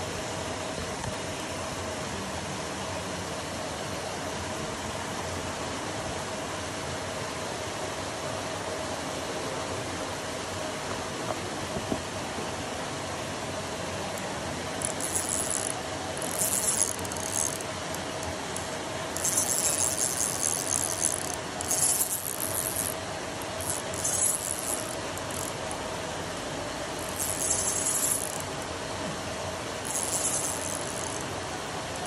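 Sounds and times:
faint constant hum: 0.0 - 32.0
high-pitched buzzy trills: 14.8 - 18.6, 19.2 - 25.8, 26.9 - 28.7, 29.8 - 32.0.

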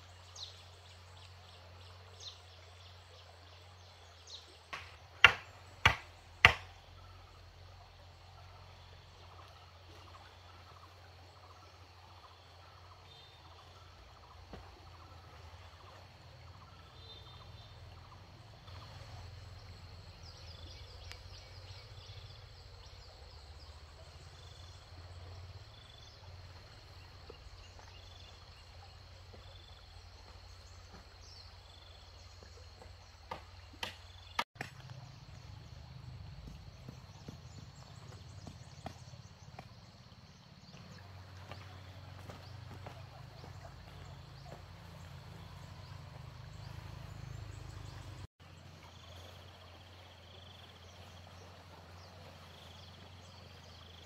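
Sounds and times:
knocks on wooden poles: 4.7 - 6.7.

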